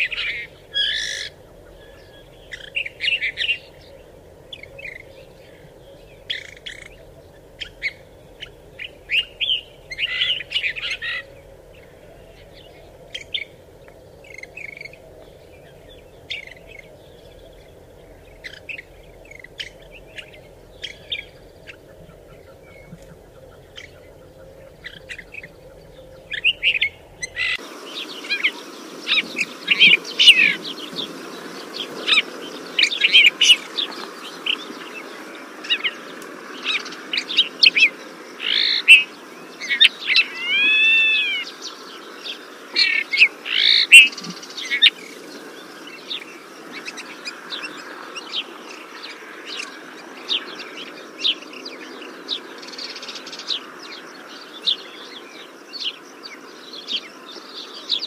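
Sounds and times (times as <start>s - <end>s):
finch chirping: 0.0s - 36.0s, 36.6s - 45.0s
steady background hiss: 0.0s - 58.0s.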